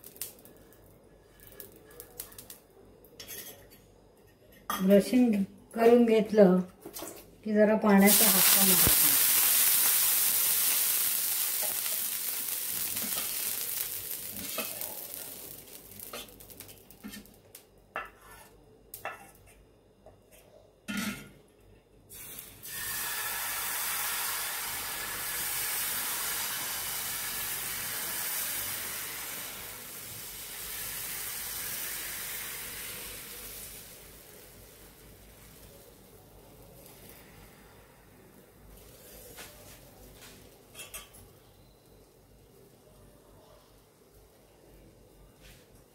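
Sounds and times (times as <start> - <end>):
batter sizzling: 0.0 - 2.7, 7.9 - 19.3, 22.1 - 37.8
water hissing on hot pan: 8.0 - 17.3, 22.1 - 37.8.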